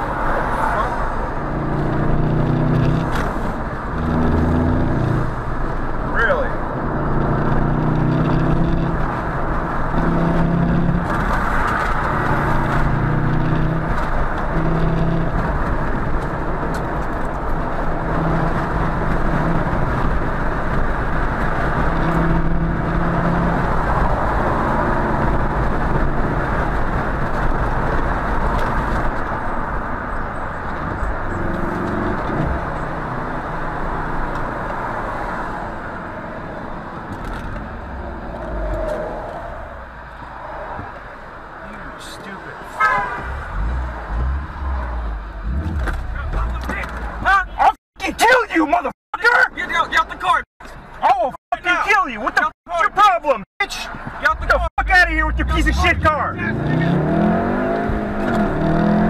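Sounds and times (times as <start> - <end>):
muffled road and engine noise: 0.0 - 59.0.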